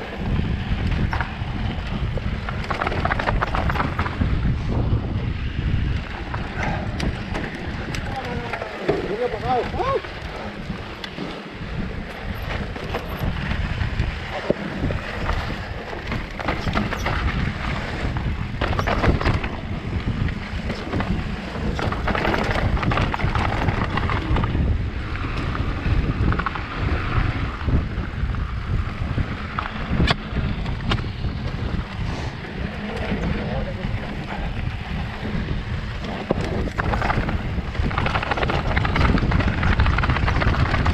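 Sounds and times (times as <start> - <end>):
bike rumbling and rattling: 0.0 - 40.9
wind buffeting microphone: 0.0 - 40.9
wheels knocking on stones: 0.7 - 4.5, 12.0 - 27.4, 32.7 - 40.9.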